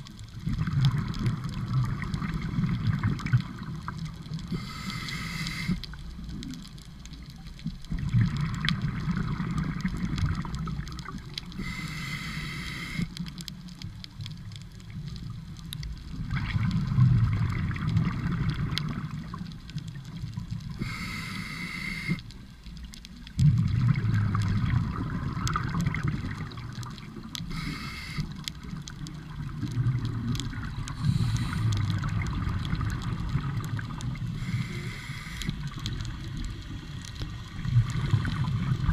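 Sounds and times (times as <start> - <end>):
regulator hissing inhale: 4.5 - 5.9, 11.6 - 13.1, 20.8 - 22.2, 27.5 - 28.4, 31.0 - 31.9, 34.4 - 35.7
gurgling exhaust bubbles: 23.4 - 26.9.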